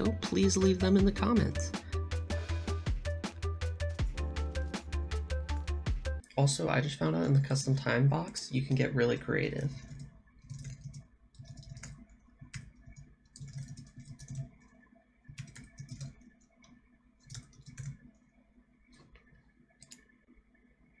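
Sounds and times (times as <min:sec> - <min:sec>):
typing on computer keyboard: 0:09.7 - 0:18.2.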